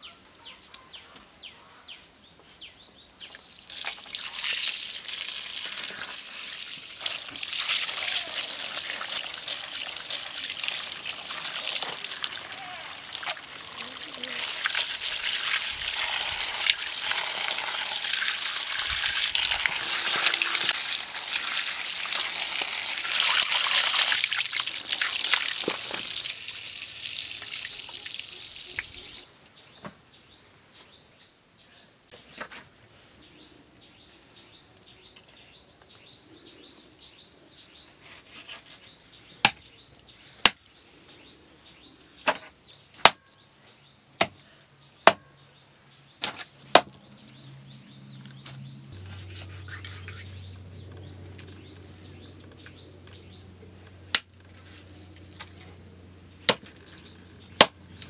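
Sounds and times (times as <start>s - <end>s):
water splashing over vegetables: 3.7s - 28.7s.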